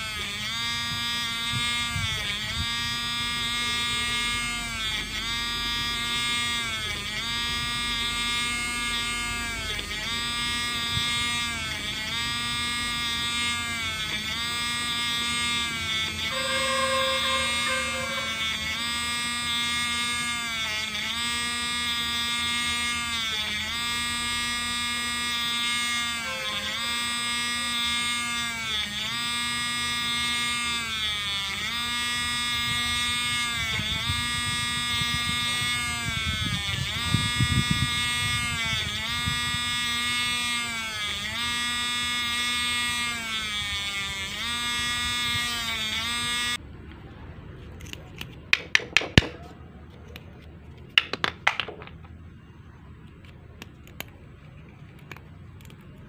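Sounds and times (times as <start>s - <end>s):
electric rotary tool whining: 0.0s - 46.6s.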